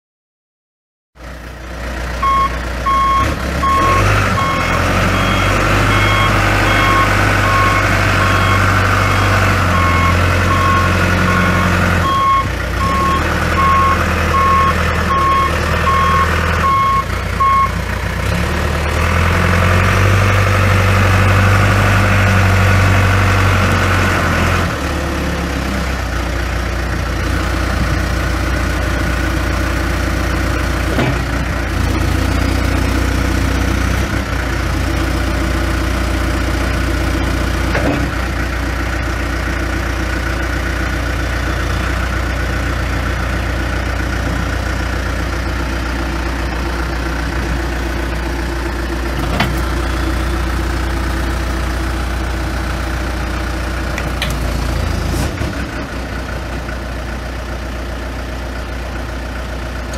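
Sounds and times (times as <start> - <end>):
diesel engine running: 1.2 - 59.9
backup alarm beeping: 2.2 - 17.8.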